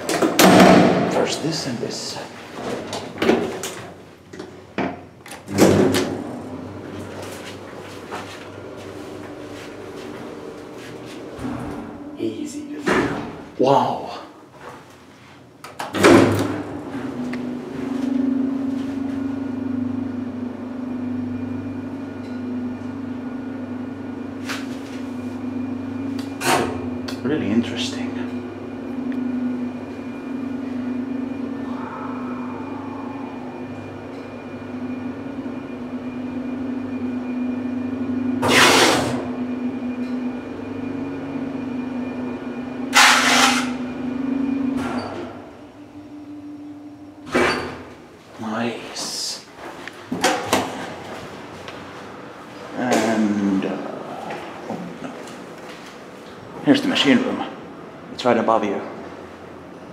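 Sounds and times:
elevator drive hum: 0.0 - 38.5, 39.2 - 59.9
elevator rushing noises: 28.6 - 36.8
low drone: 30.0 - 35.8.

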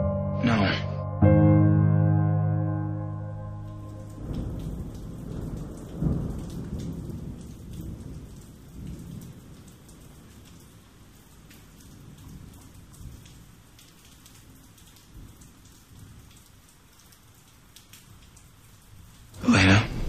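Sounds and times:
steady rain: 3.0 - 20.0
thunder rumbling: 3.5 - 10.1, 19.4 - 20.0
rain drop ticks: 3.6 - 20.0
sharp thunder crack: 4.1 - 8.0, 19.4 - 20.0.

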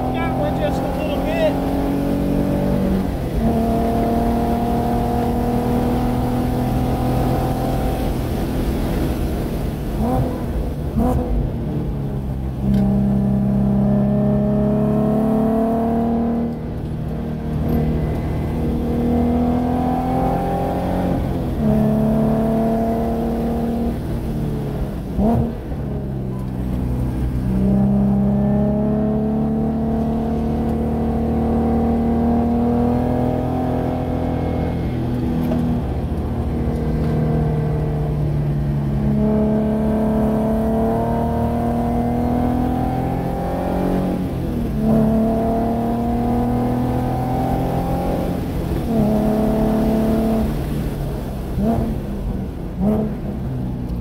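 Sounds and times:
car engine revving in cabin: 0.0 - 11.5, 12.2 - 54.0
engine blips on downshifts: 0.0 - 54.0.

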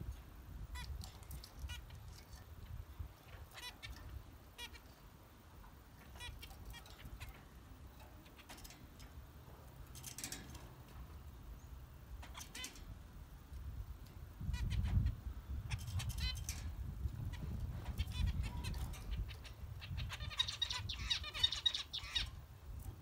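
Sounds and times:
low background rumble: 0.0 - 23.0
finches honking calls: 0.7 - 5.1, 6.0 - 9.0, 14.4 - 22.4.

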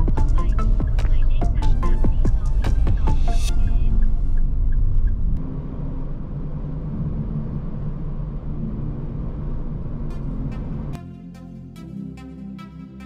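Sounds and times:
engine and tyre rumble: 0.0 - 11.0
background music: 0.0 - 13.0.

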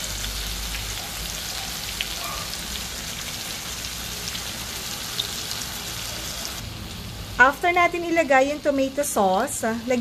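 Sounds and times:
oil crackling and popping: 0.0 - 5.8
chicken sizzling in hot oil: 0.0 - 10.0.

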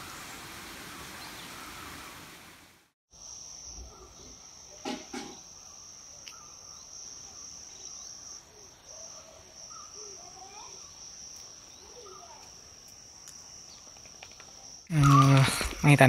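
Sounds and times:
faint wavering insect calls: 3.1 - 15.9
insects shrilling: 3.1 - 16.0.

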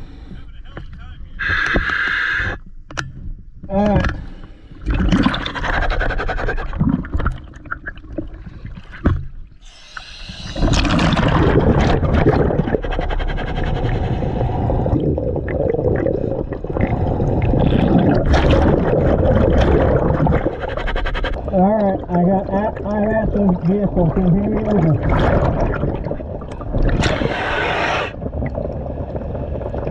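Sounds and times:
regulator inhale hiss: 1.4 - 2.6, 9.6 - 10.7
exhaled bubbles rushing: 4.8 - 9.0, 9.9 - 29.9.

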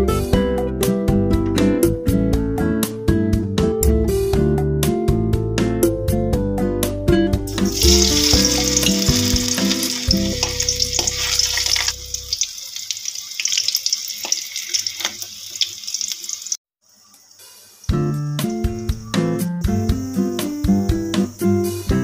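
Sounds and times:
guitar background music: 0.0 - 12.4, 17.9 - 22.0
banana sizzling in hot oil: 7.5 - 21.4.

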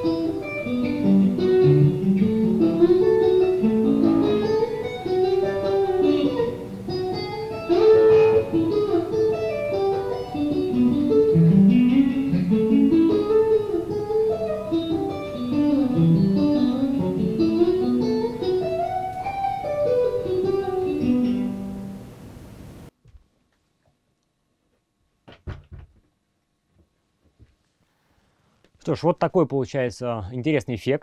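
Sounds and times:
distant electric guitar melody: 0.0 - 22.9.

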